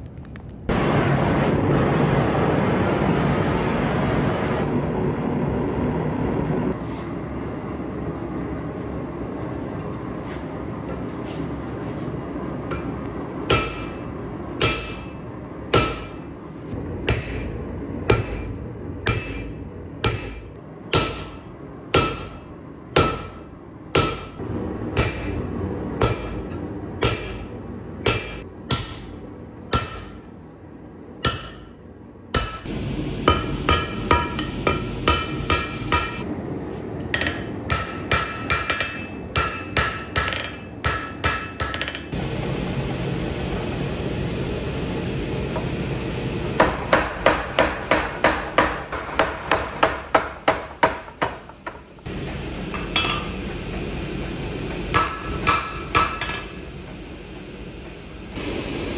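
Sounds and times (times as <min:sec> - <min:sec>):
sledgehammer blows on hot steel: 0:12.7 - 0:30.2, 0:32.3 - 0:36.3
anvil ringing: 0:18.1 - 0:21.4, 0:33.3 - 0:36.2.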